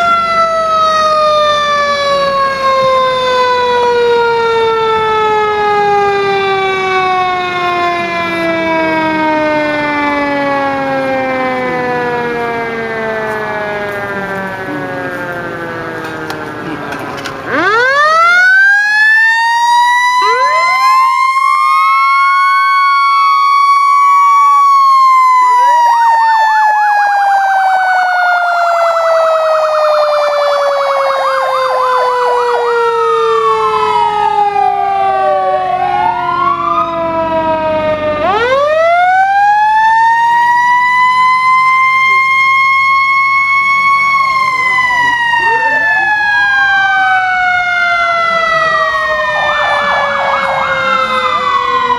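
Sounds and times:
fire truck siren winding: 0.0 - 51.9
warbling siren: 0.0 - 51.9.

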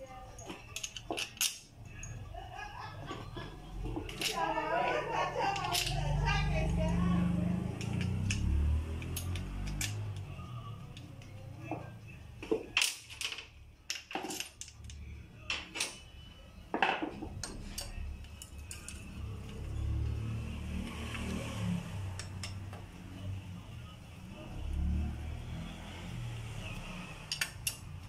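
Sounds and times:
metal tools clinking and tapping: 0.2 - 2.3, 3.1 - 4.6, 5.4 - 6.2, 7.7 - 20.2, 22.2 - 22.8, 27.3 - 28.0.

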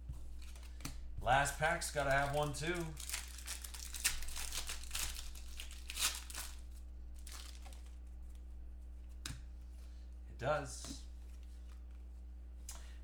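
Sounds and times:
cards being handled: 0.0 - 9.9, 10.8 - 12.8
steady low hum: 0.0 - 13.0
foil wrapper tearing and crinkling: 1.6 - 8.0.

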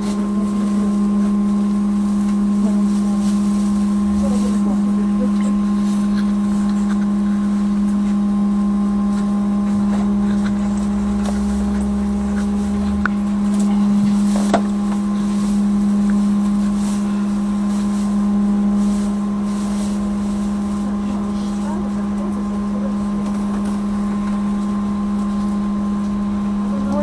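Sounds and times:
deep rumble: 0.0 - 27.0
trolleybus electrical hum: 0.0 - 27.0.

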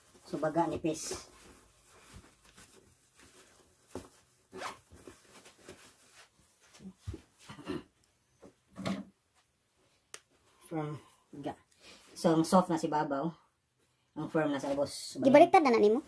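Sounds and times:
fabric rustling: 0.0 - 7.5
zipper being pulled: 4.5 - 4.8.

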